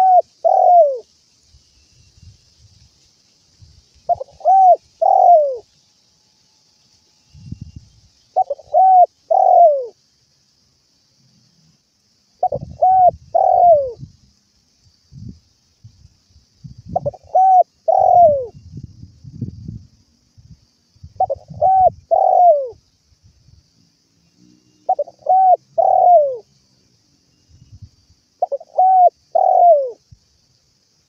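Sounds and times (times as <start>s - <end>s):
dove cooing: 0.0s - 1.0s, 4.1s - 5.6s, 8.4s - 10.0s, 12.4s - 14.0s, 17.0s - 18.5s, 21.2s - 22.8s, 24.9s - 26.5s, 28.4s - 30.0s.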